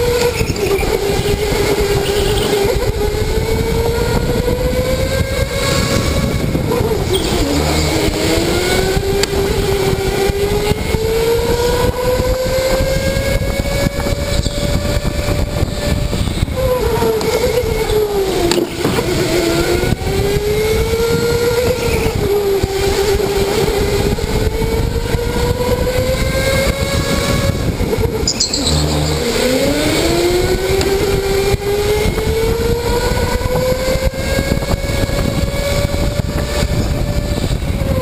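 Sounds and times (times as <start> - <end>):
electric go-kart motor whining: 0.0 - 38.0
tyre and wind noise: 0.0 - 38.0.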